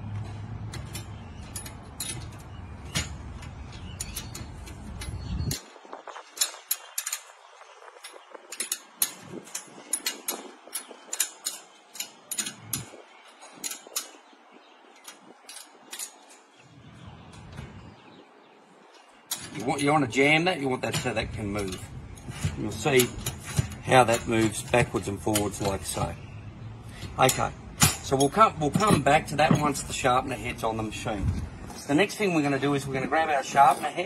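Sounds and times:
metal clicks of hand tools: 6.4 - 7.4, 8.0 - 14.3, 15.0 - 16.4, 20.8 - 26.1, 26.9 - 29.9
steady low rumble: 20.8 - 33.1.

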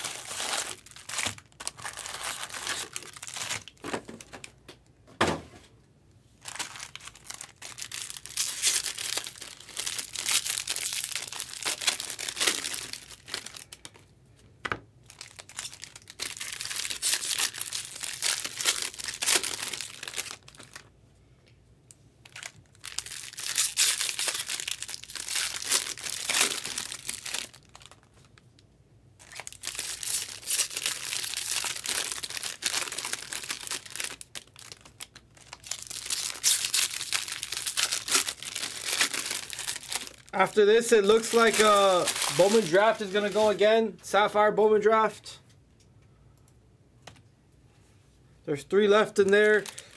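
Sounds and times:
foil wrappers tearing and crinkling: 0.0 - 4.4, 6.4 - 14.0, 15.1 - 20.8, 22.2 - 28.2, 29.2 - 43.6, 49.2 - 49.9.

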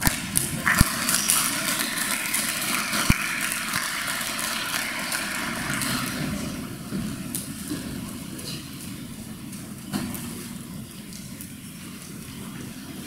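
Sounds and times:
audience applauding: 0.6 - 6.6.

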